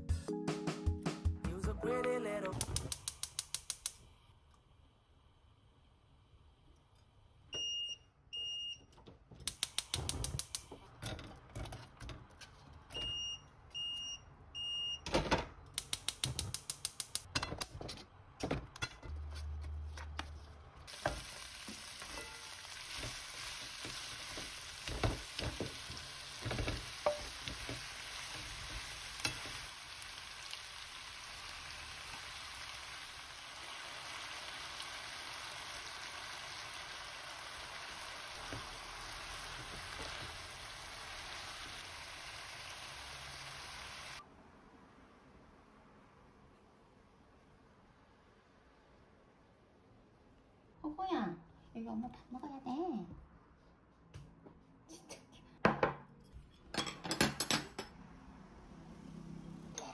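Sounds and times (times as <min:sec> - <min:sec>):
ingredients clattering into wok: 0:20.9 - 0:29.7
vegetables sizzling in oil: 0:20.9 - 0:44.2.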